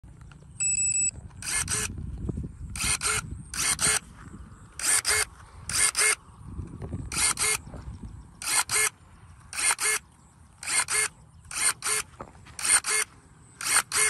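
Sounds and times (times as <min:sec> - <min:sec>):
short beeps: 0:00.6 - 0:01.2
pruning shears motor whirring: 0:01.4 - 0:02.0, 0:02.7 - 0:04.1, 0:04.8 - 0:06.2, 0:07.0 - 0:07.7, 0:08.4 - 0:14.0.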